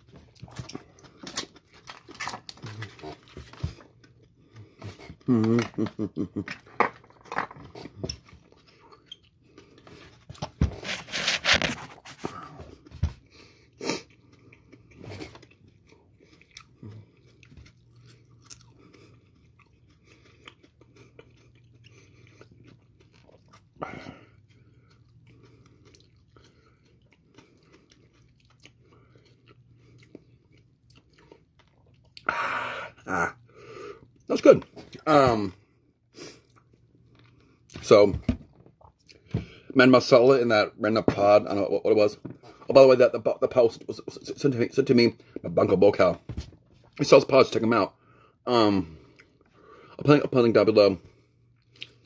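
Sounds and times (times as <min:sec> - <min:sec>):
man chewing: 0:00.0 - 0:06.8, 0:07.5 - 0:35.0, 0:35.6 - 0:37.8, 0:48.9 - 0:50.0, 0:51.1 - 0:52.0.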